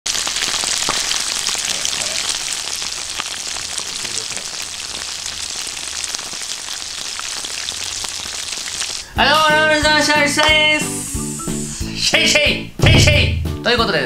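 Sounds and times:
chicken sizzling in oil: 0.1 - 12.0.

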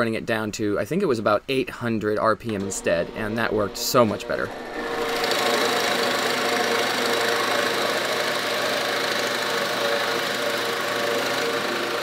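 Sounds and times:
drill bit cutting wood: 2.6 - 12.0
drill press motor hum: 2.6 - 12.0.

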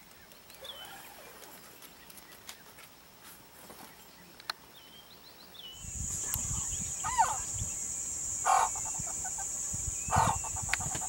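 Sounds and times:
bird chirps: 0.1 - 2.8, 3.8 - 11.0
bird sweeping call: 5.8 - 11.0
high-pitched insect buzz: 5.8 - 11.0.

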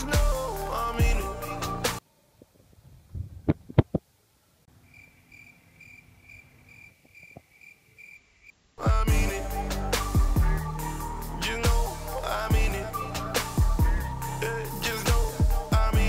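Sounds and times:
background music: 0.0 - 2.0, 8.8 - 16.0
cricket chirping: 4.7 - 8.6.

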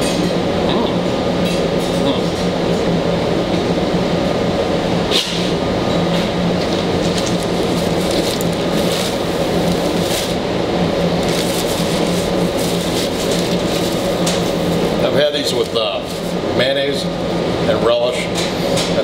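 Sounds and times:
kitchen equipment drone: 0.0 - 19.0.

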